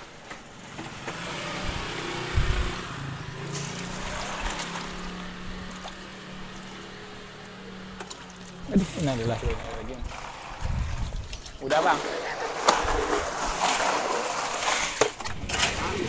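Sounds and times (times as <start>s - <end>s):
tea sloshing: 3.4s - 15.2s
ice clattering: 8.0s - 16.0s.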